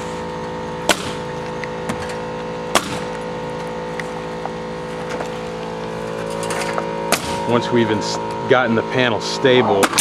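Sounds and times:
steady mechanical hum: 0:00.0 - 0:10.0
nail gun shots: 0:00.9 - 0:01.2, 0:02.7 - 0:03.1, 0:07.1 - 0:07.4, 0:09.8 - 0:10.0.

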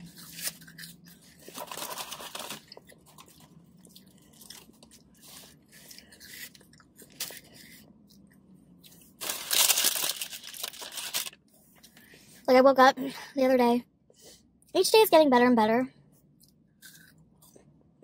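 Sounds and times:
paper bag rustling: 0:01.4 - 0:02.8, 0:09.2 - 0:11.4
soft chewing: 0:02.6 - 0:09.2
ketchup packet crinkling: 0:09.2 - 0:11.4.

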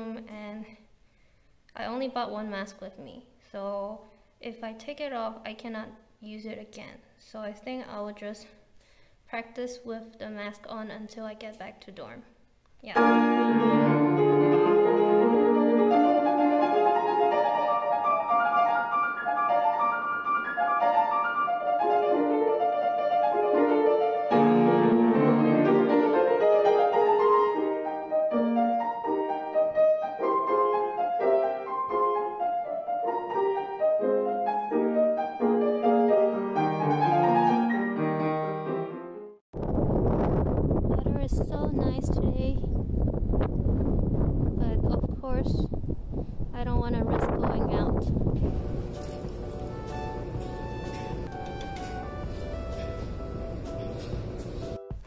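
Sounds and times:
grand piano playing: 0:13.0 - 0:39.4, 0:48.4 - 0:55.0.

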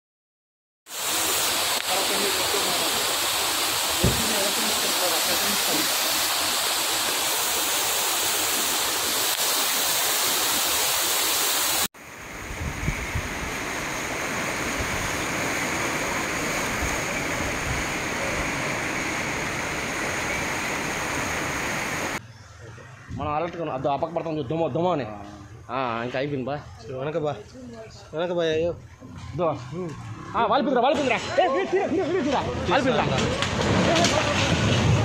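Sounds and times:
floodwater torrent rushing: 0:00.9 - 0:22.2, 0:30.1 - 0:35.0
hiss of rushing water: 0:00.9 - 0:22.2.

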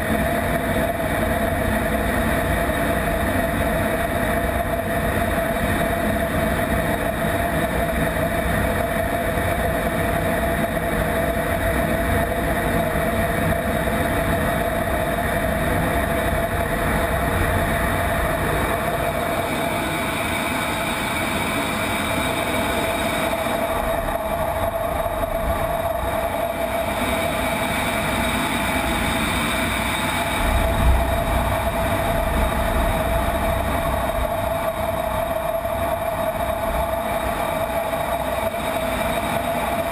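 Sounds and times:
jet engine cockpit noise: 0:00.0 - 0:39.9
mid-pitched whine: 0:00.0 - 0:39.9
rushing air: 0:13.5 - 0:39.9
low rumble: 0:30.3 - 0:35.8.

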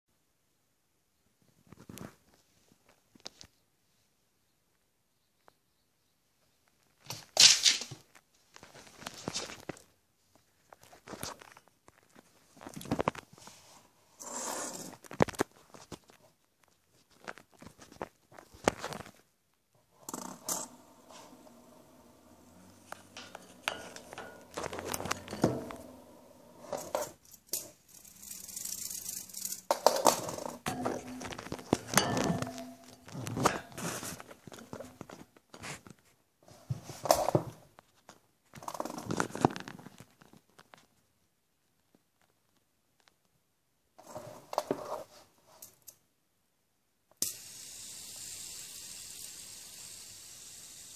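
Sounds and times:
fidget spinner clicking and knocking: 0:20.0 - 0:33.8, 0:47.2 - 0:50.9.

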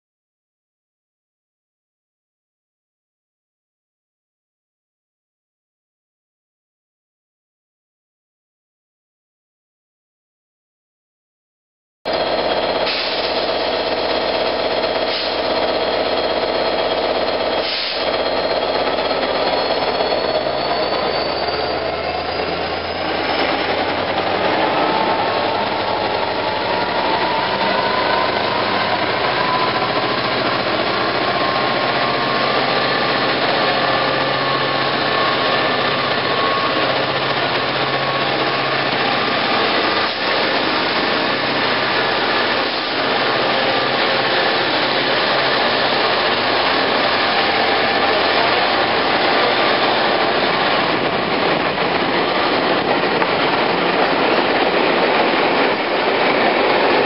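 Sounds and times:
coaches rolling on rails: 0:12.1 - 0:57.0
diesel locomotive engine whine: 0:12.1 - 0:57.0.

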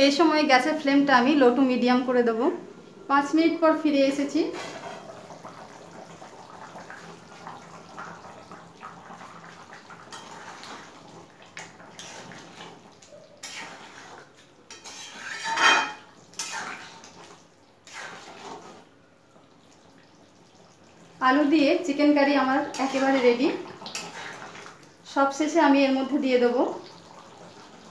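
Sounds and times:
metal spatula scraping a pan: 0:10.1 - 0:10.8, 0:11.9 - 0:12.8, 0:13.4 - 0:18.9, 0:22.6 - 0:24.8.

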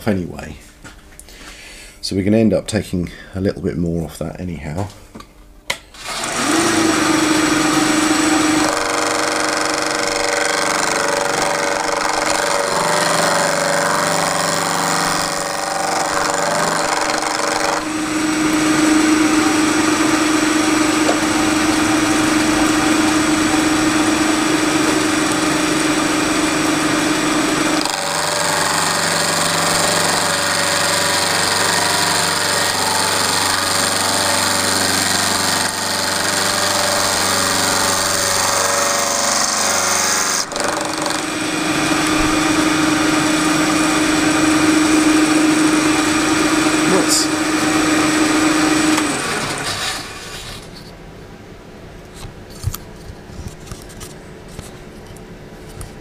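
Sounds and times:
spindle running: 0:06.0 - 0:50.2
milling machine cutting metal: 0:06.0 - 0:50.6.

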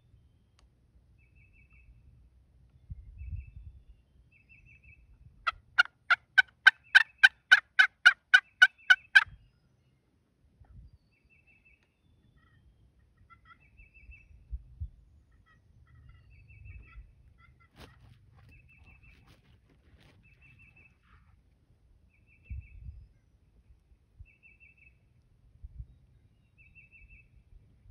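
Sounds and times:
turkey yelps: 0:05.8 - 0:09.3, 0:13.2 - 0:13.7.

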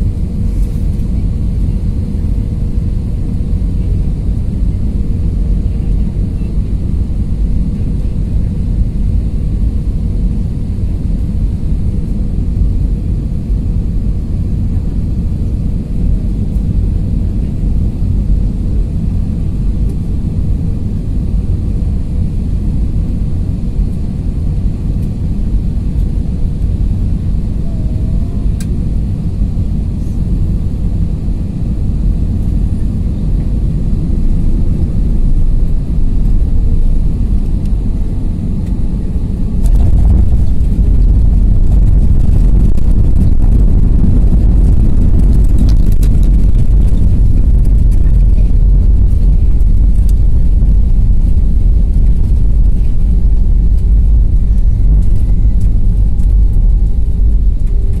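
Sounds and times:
airplane cabin noise: 0:00.0 - 0:58.0
landing roll rumble: 0:39.6 - 0:58.0.

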